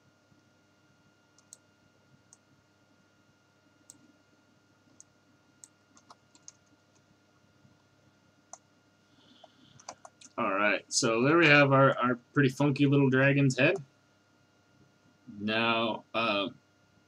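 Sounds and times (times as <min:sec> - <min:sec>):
faint steady hum: 0:00.0 - 0:17.0
mouse and keyboard clicks: 0:09.4 - 0:10.4.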